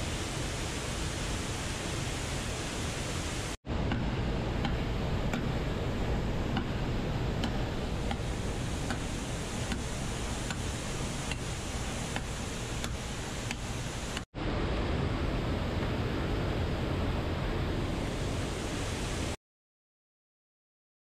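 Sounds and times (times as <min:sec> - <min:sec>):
waterfall and stream rushing: 0:00.0 - 0:03.6, 0:07.4 - 0:14.3, 0:15.4 - 0:19.4.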